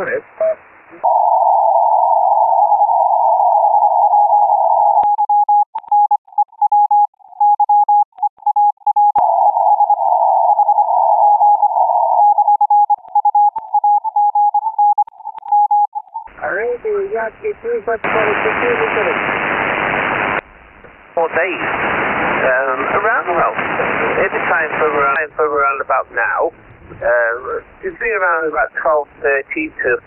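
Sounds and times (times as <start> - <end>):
radio hiss: 0.0 - 1.0, 16.3 - 30.0
morse code tone: 3.9 - 16.3.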